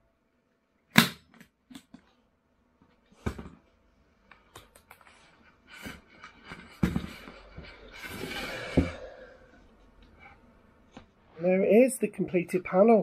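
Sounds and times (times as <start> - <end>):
taps and rustles: 4.3 - 7.8.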